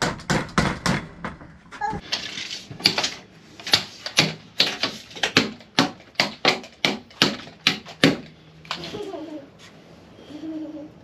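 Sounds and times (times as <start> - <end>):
hammer driving nails into plywood: 0.0 - 1.4, 2.8 - 8.4.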